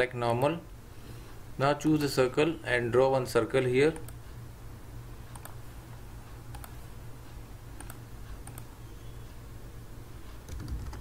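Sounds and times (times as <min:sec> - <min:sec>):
low electrical hum: 0:00.0 - 0:11.0
computer mouse clicks: 0:05.3 - 0:05.6, 0:06.5 - 0:06.8, 0:07.8 - 0:08.7.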